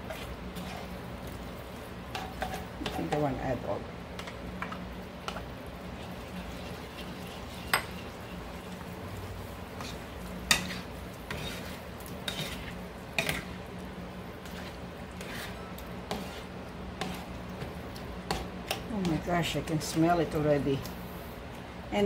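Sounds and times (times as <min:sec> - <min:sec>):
steady low hum: 0:00.0 - 0:22.0
utensil scraping a pan: 0:09.7 - 0:13.6, 0:14.4 - 0:17.7.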